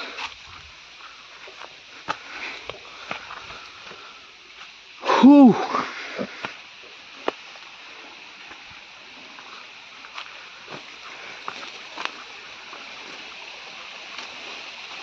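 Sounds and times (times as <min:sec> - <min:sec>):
footsteps on brush and stones: 0:00.0 - 0:04.9, 0:07.2 - 0:15.0
mountain stream rushing: 0:00.0 - 0:15.0.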